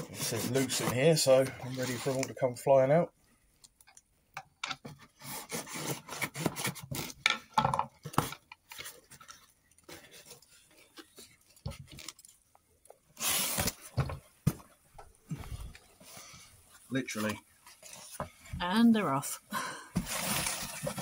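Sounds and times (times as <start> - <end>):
packing tape pulled: 13.2 - 13.8.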